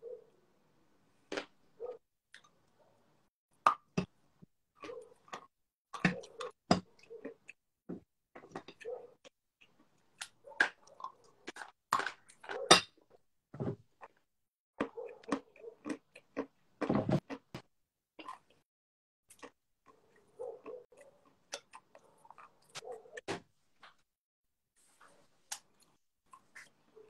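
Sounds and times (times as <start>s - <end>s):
soft chewing: 4.8s - 7.6s, 14.8s - 17.6s, 19.3s - 23.3s, 24.8s - 27.0s.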